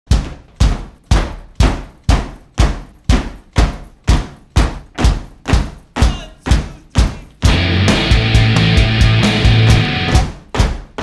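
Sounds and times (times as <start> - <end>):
rock band song: 7.4 - 10.2
loud heavy struck hits: 7.4 - 10.3.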